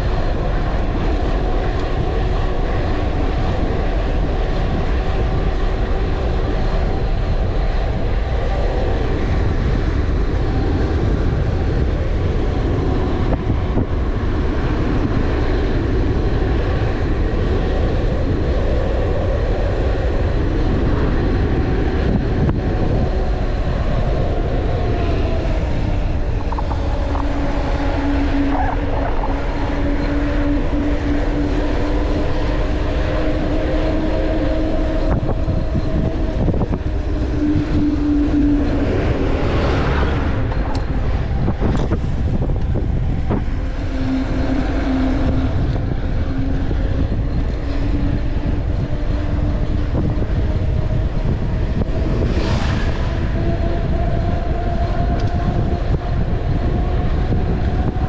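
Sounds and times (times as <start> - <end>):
wind rushing over microphone: 0.0 - 58.0.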